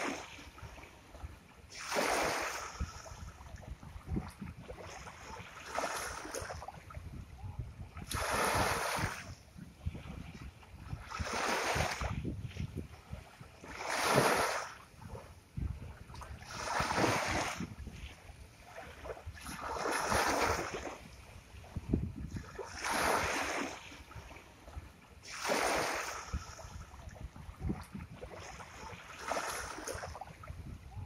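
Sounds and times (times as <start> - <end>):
sea waves washing ashore: 0.0 - 31.0.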